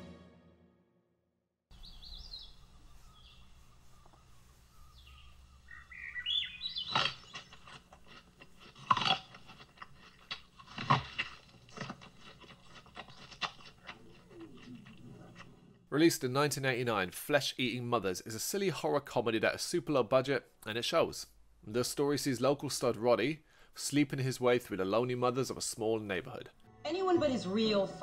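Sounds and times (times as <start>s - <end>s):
birds chirping: 1.7s - 10.0s, 11.6s - 16.1s
low background hiss: 1.8s - 6.6s.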